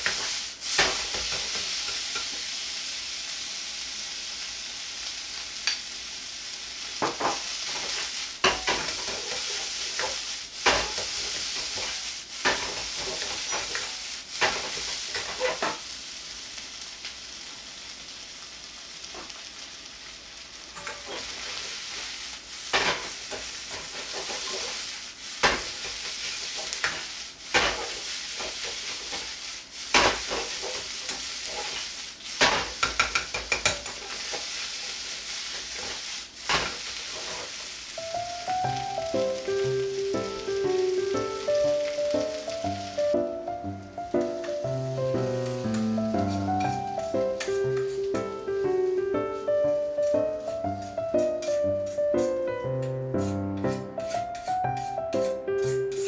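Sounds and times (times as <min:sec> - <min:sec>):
rice sizzling in a wok: 0:00.0 - 0:56.0
metal ladle scraping a pan: 0:20.8 - 0:22.1, 0:22.7 - 0:37.7, 0:50.8 - 0:52.5, 0:53.1 - 0:56.0.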